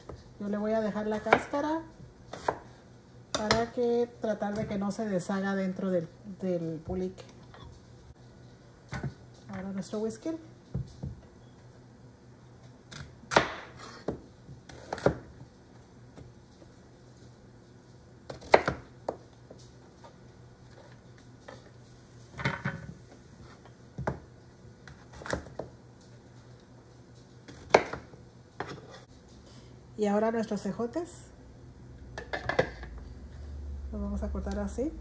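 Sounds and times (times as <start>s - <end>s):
knife chopping on plastic board: 27.5s - 28.8s.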